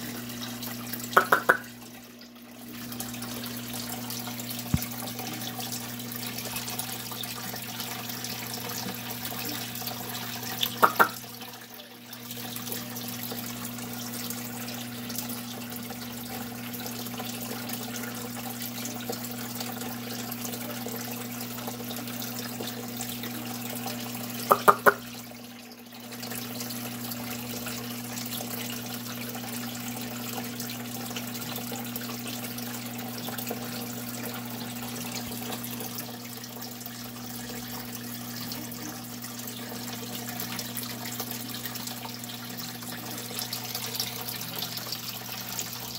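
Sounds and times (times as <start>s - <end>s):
water pouring into water: 0.0s - 45.9s.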